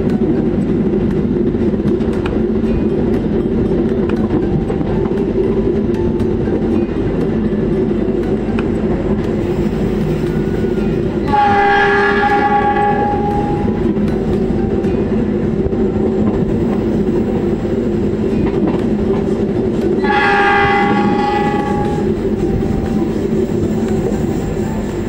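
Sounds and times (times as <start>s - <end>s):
train rumble and rail clatter: 0.0s - 25.0s
locomotive horn blast: 11.2s - 13.8s, 20.0s - 22.2s.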